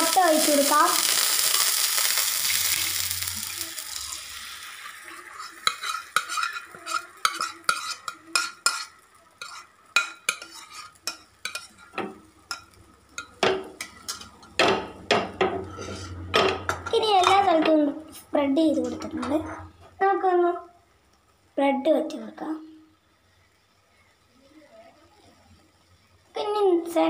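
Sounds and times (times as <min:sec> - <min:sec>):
butter sizzling in a pan: 0:00.0 - 0:27.0
metal spoon scraping bowl and pan: 0:05.1 - 0:17.7, 0:18.8 - 0:19.8.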